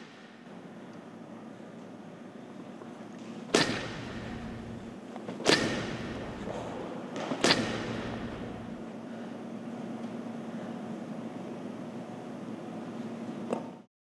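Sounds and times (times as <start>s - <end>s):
low steady hum: 0.0s - 13.8s
bat hitting baseball: 3.5s - 8.8s.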